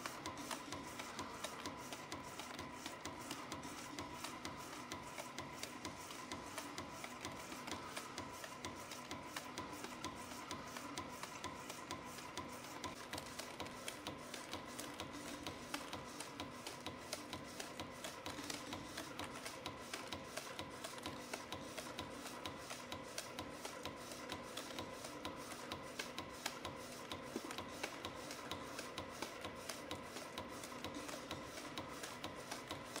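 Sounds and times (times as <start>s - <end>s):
rapid regular machine clicking: 0.0s - 33.0s.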